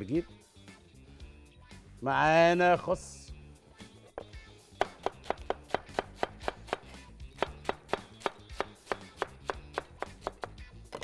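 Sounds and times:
cleaver chopping on plastic board: 4.2 - 11.0.

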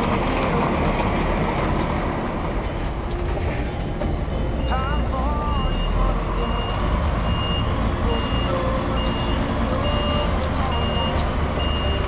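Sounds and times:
diesel engine rumble: 0.0 - 12.0
truck reversing alarm beeping: 4.3 - 12.0.

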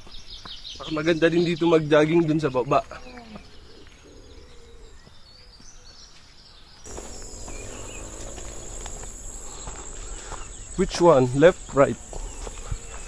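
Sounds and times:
faint outdoor ambience: 0.0 - 13.0
insects droning: 6.9 - 13.0.

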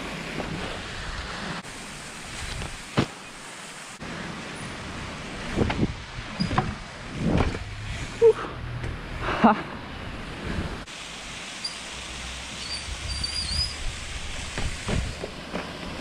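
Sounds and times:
bike tyres rolling: 0.0 - 9.2, 12.5 - 16.0
wind on microphone: 5.4 - 8.2, 12.8 - 15.3.

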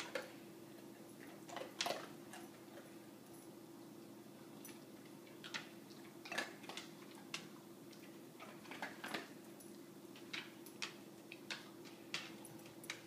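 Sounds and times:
steady low hum: 0.0 - 13.0
dog toenails clicking on floor: 4.6 - 13.0.

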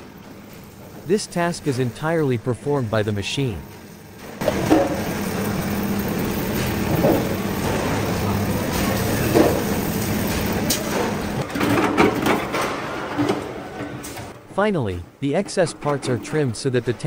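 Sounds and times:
welding machine electrical buzz: 0.0 - 11.6.

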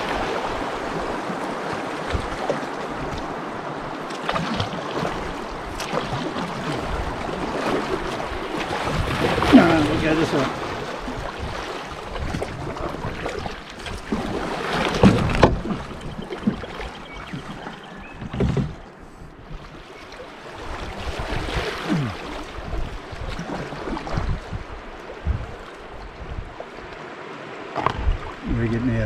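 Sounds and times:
paddles dipping in water: 0.0 - 29.0
water washing along hull: 0.0 - 29.0.

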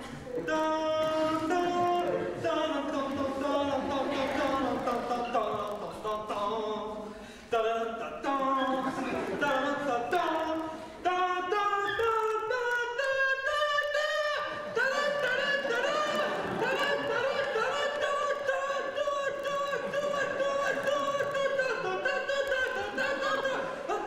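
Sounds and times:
person singing unaccompanied: 0.0 - 24.0.

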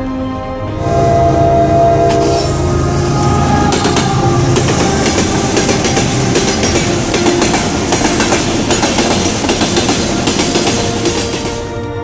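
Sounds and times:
freight train passing: 0.0 - 12.0
wheels clattering over rail joints: 3.6 - 11.6.

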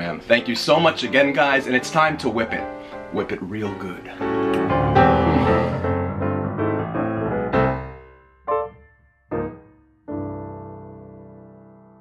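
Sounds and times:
piano-like keyboard music: 0.0 - 12.0
struck keyboard chords: 4.2 - 7.8.

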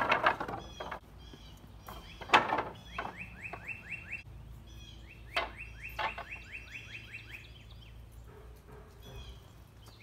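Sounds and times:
wooden knocks: 0.0 - 1.0, 1.9 - 3.7, 5.4 - 6.4
songbird trilling: 0.6 - 8.0.

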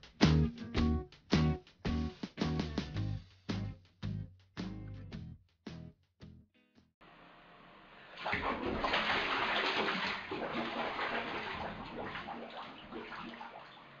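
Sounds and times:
water splashing in bathtub: 8.1 - 14.0.

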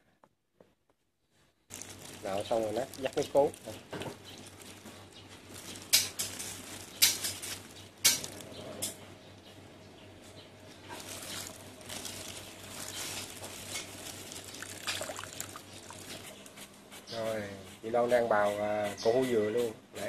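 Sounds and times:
liquid trickling through metal strainer: 11.0 - 16.5.

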